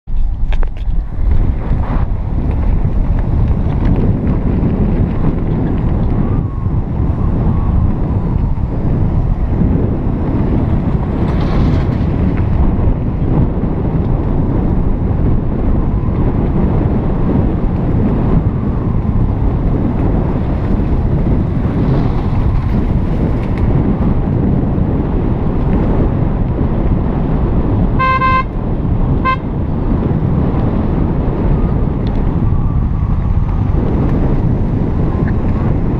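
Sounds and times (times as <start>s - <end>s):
wind rumble on microphone: 0.0s - 35.9s
car road noise on concrete: 0.1s - 35.9s
vehicle horn toots: 28.0s - 28.6s, 29.2s - 29.6s.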